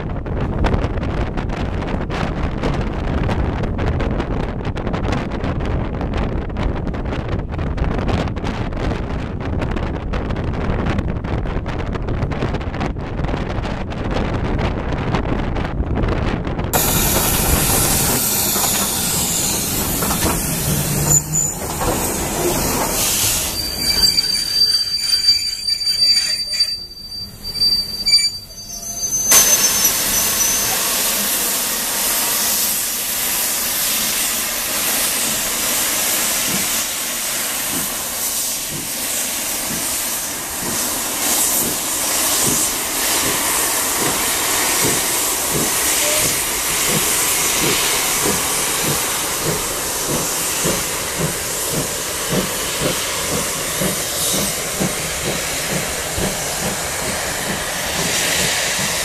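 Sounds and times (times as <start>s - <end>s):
locomotive exhaust beats: 16.8s - 31.2s
loud hiss of steam: 16.8s - 59.0s.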